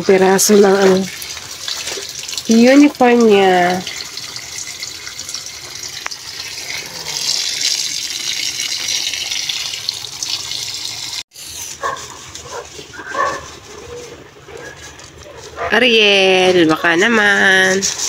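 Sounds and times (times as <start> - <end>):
tap water pouring into basin: 0.0 - 11.2
clothes washed by hand: 0.0 - 18.0.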